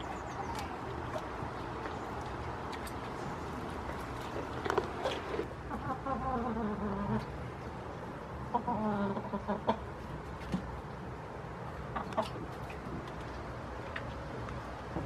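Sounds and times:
hens calling: 0.0s - 7.4s, 8.4s - 10.1s.

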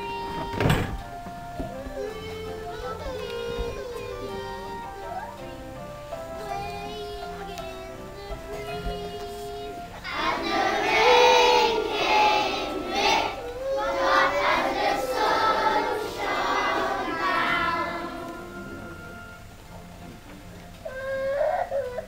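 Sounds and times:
children singing together: 0.0s - 19.4s.

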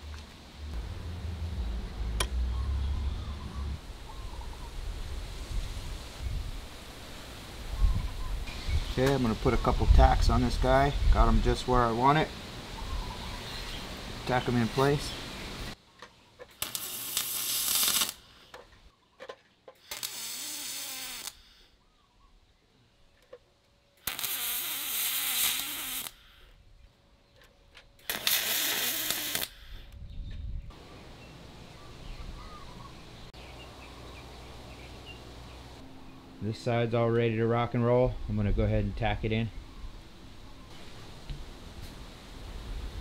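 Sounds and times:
welding arc hissing and crackling: 16.6s - 18.3s, 19.8s - 21.6s, 24.0s - 26.4s, 28.0s - 29.8s.

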